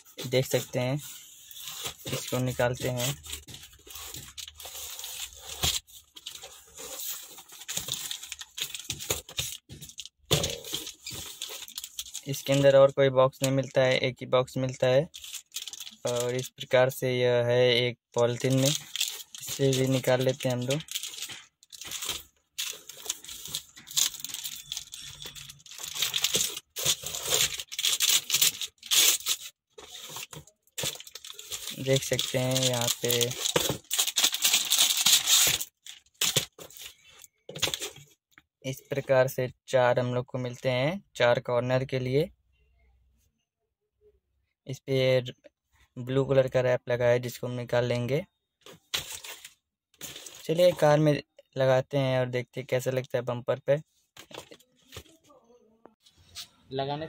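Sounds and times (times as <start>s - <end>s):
cardboard and plastic rustling: 1.4s - 12.7s, 18.3s - 38.1s, 48.6s - 50.9s
plastic wrapping crinkling: 15.1s - 16.5s, 18.3s - 37.0s.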